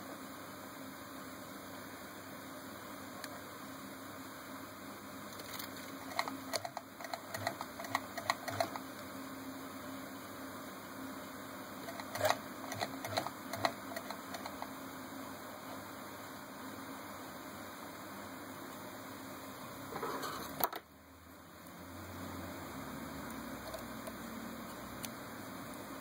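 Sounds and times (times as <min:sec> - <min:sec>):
sewing machine clicking: 0:06.0 - 0:08.8, 0:11.8 - 0:14.7.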